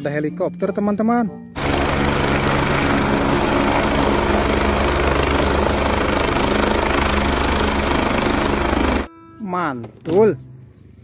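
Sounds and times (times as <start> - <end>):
helicopter engine hum and hiss: 1.6 - 9.1
helicopter rotor beat: 1.6 - 9.1.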